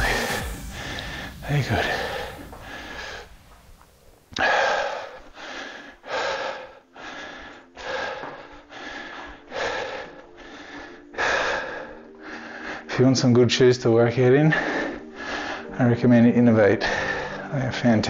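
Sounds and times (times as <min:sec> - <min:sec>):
man panting heavily: 0:00.0 - 0:03.7, 0:04.4 - 0:12.9, 0:14.5 - 0:15.7.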